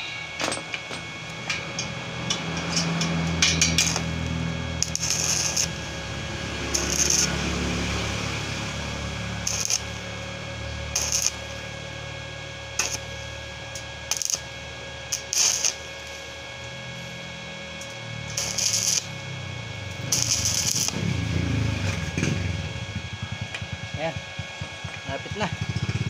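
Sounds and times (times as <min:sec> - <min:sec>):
steady hum: 0:00.0 - 0:26.0
welding arc crackling: 0:00.7 - 0:26.0.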